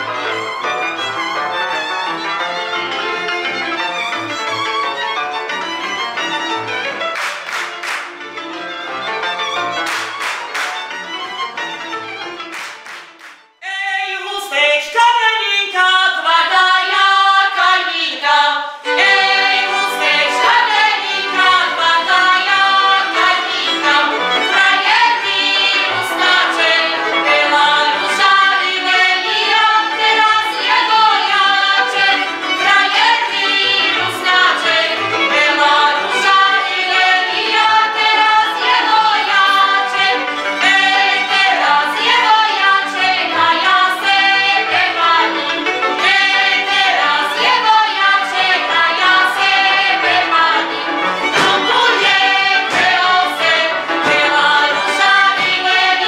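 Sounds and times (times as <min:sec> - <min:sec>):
women singing folk song: 0:13.8 - 0:56.0.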